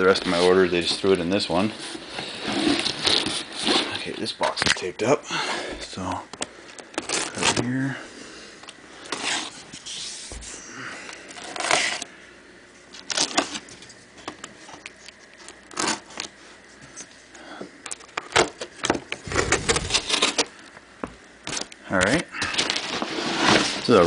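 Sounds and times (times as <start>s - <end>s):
cardboard box being opened: 19.2s - 20.4s.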